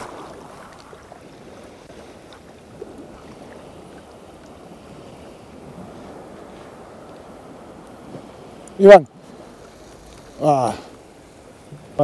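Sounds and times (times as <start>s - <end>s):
wind on microphone: 0.0s - 10.8s
sea lapping: 0.0s - 12.0s
faint ticks: 8.6s - 8.8s, 9.6s - 10.4s.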